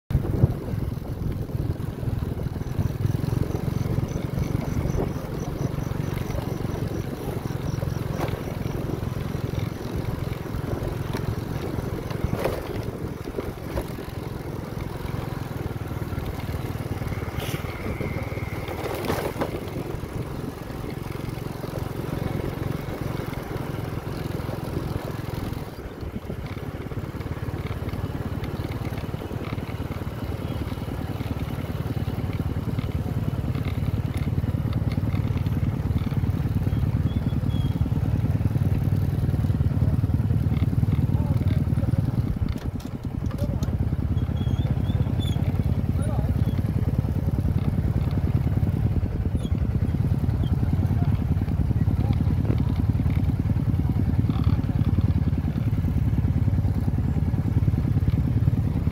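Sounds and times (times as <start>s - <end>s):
road rumble: 0.1s - 58.9s
vehicle engine drone: 0.1s - 58.9s
wind rush: 17.4s - 18.8s.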